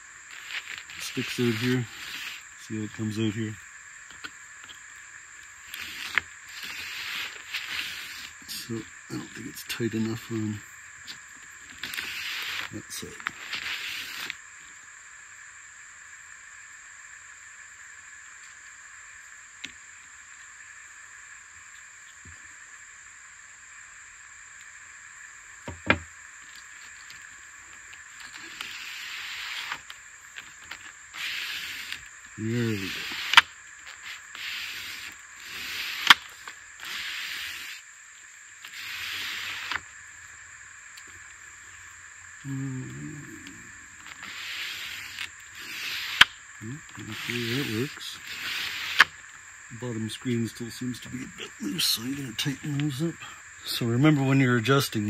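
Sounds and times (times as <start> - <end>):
high-pitched background hiss: 0.0 - 55.0
blind swishing along frame: 0.3 - 2.4, 5.7 - 8.6, 11.8 - 14.3, 28.2 - 29.9, 30.6 - 37.8, 38.6 - 39.8, 44.1 - 46.3, 47.0 - 49.1.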